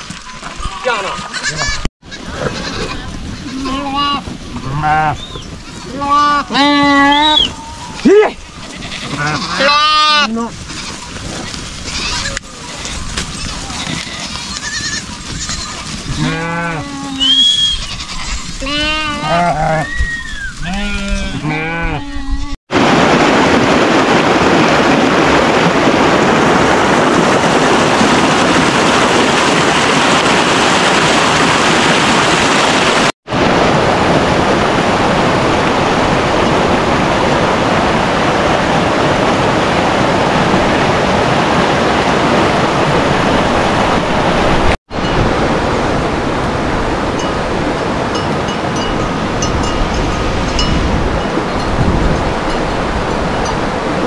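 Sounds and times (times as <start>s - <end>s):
sheep bleating: 0.6s - 5.2s, 5.8s - 11.0s, 11.9s - 19.9s, 20.6s - 22.6s
stream rushing over rocks: 22.7s - 54.0s.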